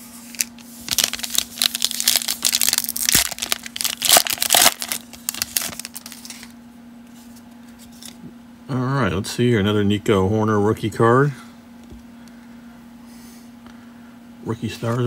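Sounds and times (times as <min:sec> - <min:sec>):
foil wrapper crinkling: 0:00.3 - 0:06.6.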